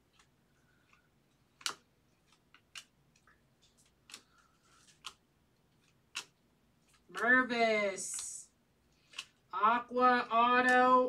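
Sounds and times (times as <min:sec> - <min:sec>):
cards clicking when flicked: 0:00.9 - 0:03.0, 0:03.8 - 0:05.2, 0:05.9 - 0:07.3.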